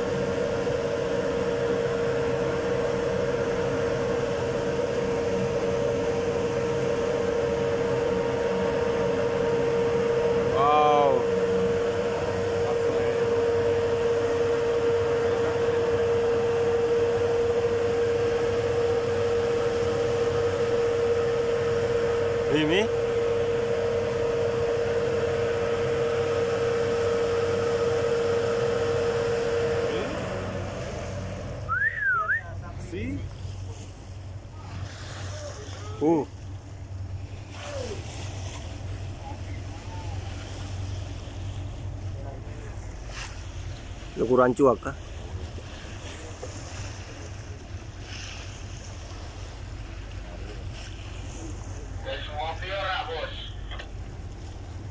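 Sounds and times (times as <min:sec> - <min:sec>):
low rumbling noise: 0:00.0 - 0:54.9
water rushing along hull: 0:00.0 - 0:54.9
steady whistle-like tone: 0:31.6 - 0:32.6.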